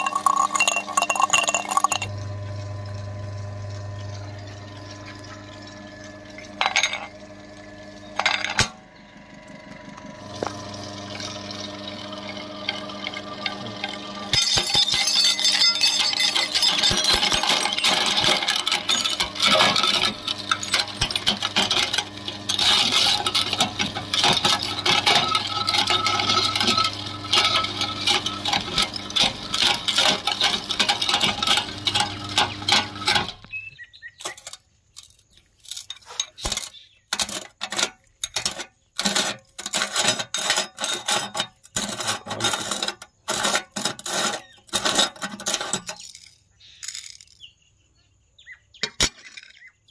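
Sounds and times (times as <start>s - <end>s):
glass clinks and clicks: 0.0s - 2.1s, 13.4s - 22.0s
glass crunching in meat grinder: 0.0s - 8.8s, 9.4s - 46.3s
grinder machine hum: 0.0s - 34.3s, 37.1s - 46.0s.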